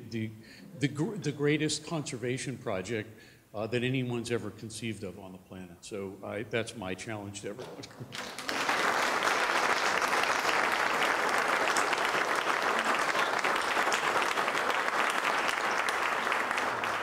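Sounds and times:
audience applauding: 8.1s - 17.0s.

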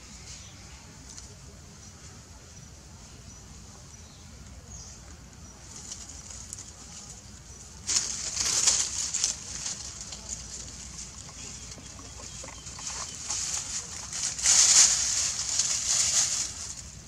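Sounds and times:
dry leaves and twigs crackling: 0.1s - 2.2s, 3.6s - 17.0s.

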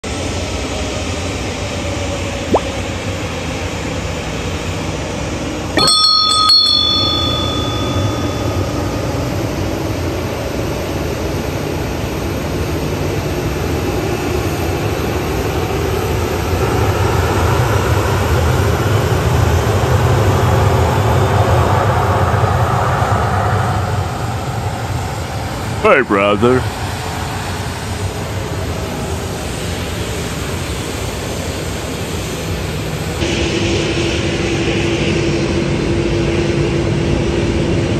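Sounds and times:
metallic clang ringing: 5.8s - 9.6s
aircraft and vehicle engines rumbling: 19.6s - 37.9s.

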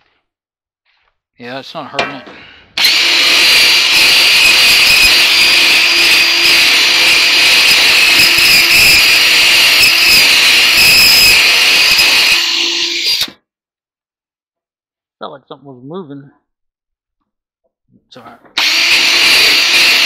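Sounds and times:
drill squealing against metal: 2.8s - 13.4s, 18.6s - 20.0s.

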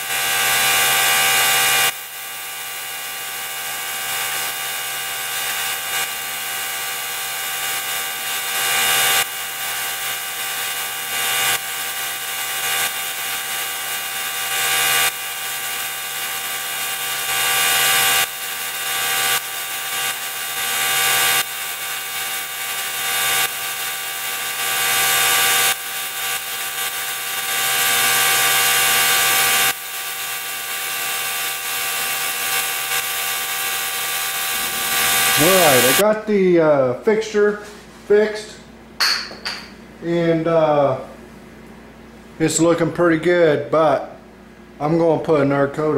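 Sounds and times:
motor hum: 0.0s - 36.0s
spray gun hissing: 33.4s - 36.0s.

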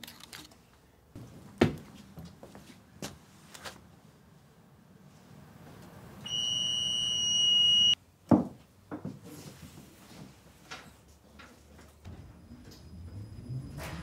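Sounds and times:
high door warning beep: 6.2s - 8.0s.

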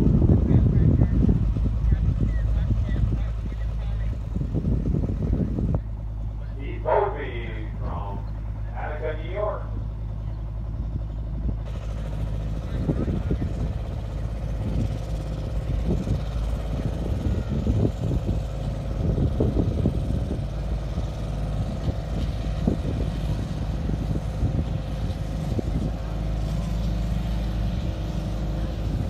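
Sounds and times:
diesel tractor engine under load: 0.0s - 29.0s.

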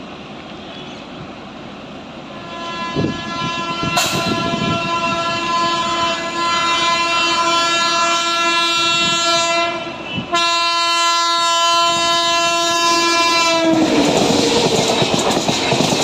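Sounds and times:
locomotive air horn blasts: 2.3s - 14.1s.

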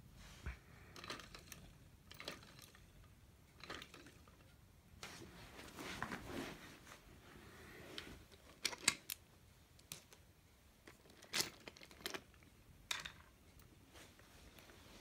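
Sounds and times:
soft rustling: 5.0s - 8.7s, 13.4s - 15.0s.

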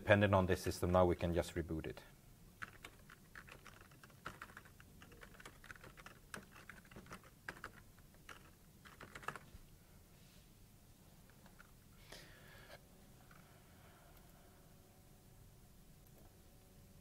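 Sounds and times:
faint keyboard typing: 2.6s - 9.6s, 11.2s - 11.8s, 16.0s - 16.4s.

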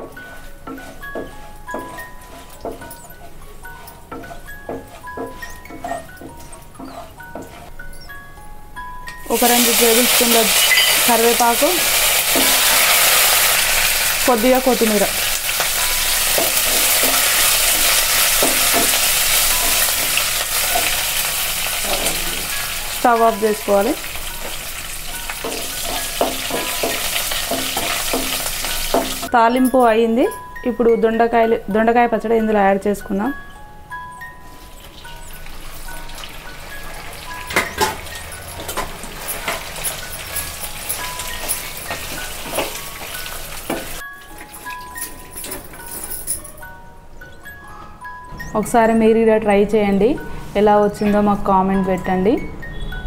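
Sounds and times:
spatula scraping and knocking pan: 0.0s - 7.8s, 9.4s - 29.3s, 36.6s - 44.0s
wooden spatula scraping: 0.0s - 7.8s
spices sizzling in hot oil: 9.2s - 29.4s, 34.4s - 45.0s.

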